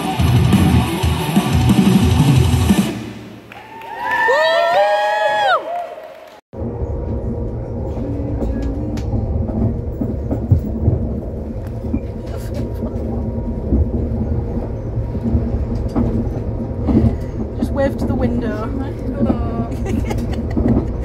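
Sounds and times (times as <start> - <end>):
faint hum: 6.6 - 21.0
train rumble: 6.6 - 21.0.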